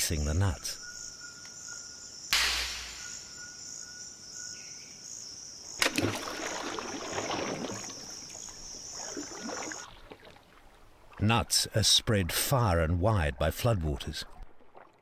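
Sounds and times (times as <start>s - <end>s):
insects trilling: 0.0s - 10.4s
nut splashing into water: 5.8s - 10.4s.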